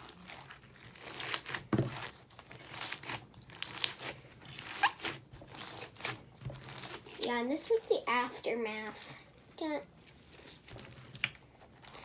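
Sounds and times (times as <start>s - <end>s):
slime crunching and popping: 0.0s - 7.3s.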